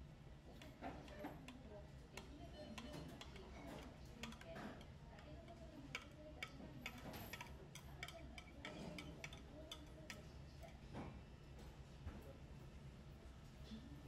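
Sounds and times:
chopsticks clicking on plastic: 2.2 - 10.8.

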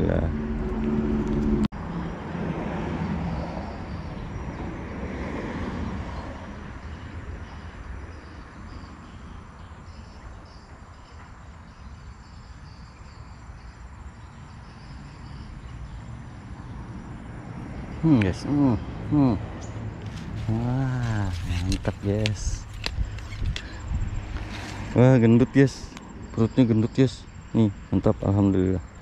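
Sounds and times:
vehicle passing: 0.0 - 8.9, 14.8 - 28.6
insects chirping: 0.1 - 29.0.

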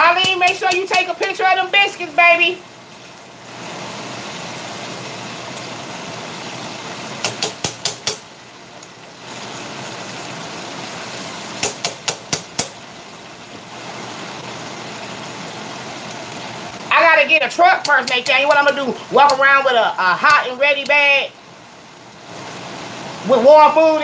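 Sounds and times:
ribs sizzling in hot oil: 0.0 - 24.0.

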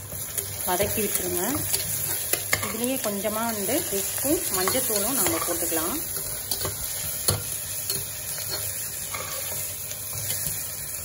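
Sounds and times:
food sizzling in oil: 0.0 - 11.0
metal spatula scraping pan: 4.4 - 10.6.

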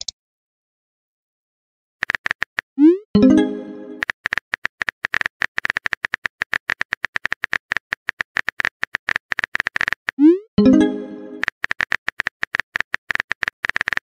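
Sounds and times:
phone keyboard typing clicks: 2.0 - 2.7, 4.0 - 10.2, 11.4 - 14.0.

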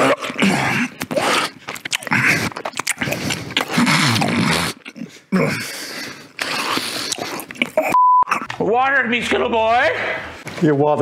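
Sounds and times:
heavy breathing: 0.0 - 8.0
wet mouth sounds: 0.0 - 8.6
man groaning: 5.0 - 5.7.

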